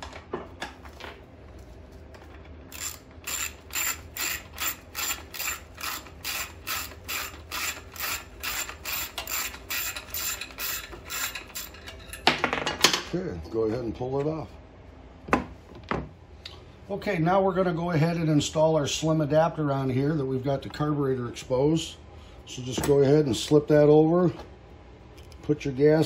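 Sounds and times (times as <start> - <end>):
ratchet wrench clicking: 2.7 - 11.8.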